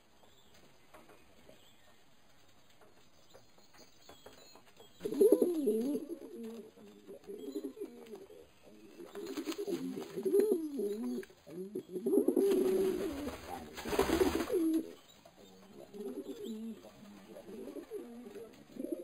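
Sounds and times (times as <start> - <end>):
pigeons cooing: 5.0 - 19.0.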